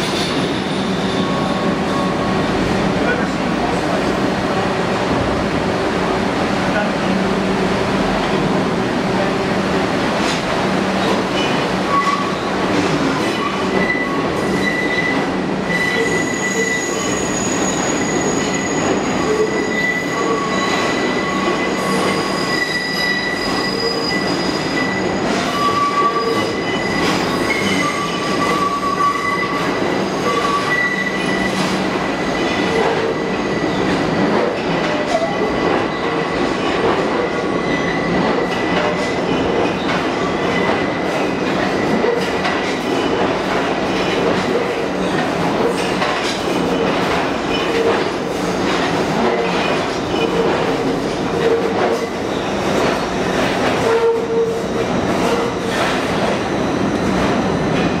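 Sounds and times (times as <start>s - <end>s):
rail joint clacks: 10.1s - 58.0s
train wheels squealing: 13.3s - 34.0s
train running rumble: 31.4s - 58.0s.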